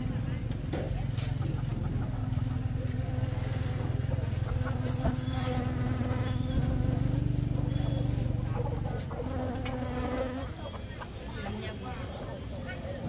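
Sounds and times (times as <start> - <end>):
small engine idling: 0.0 - 9.9.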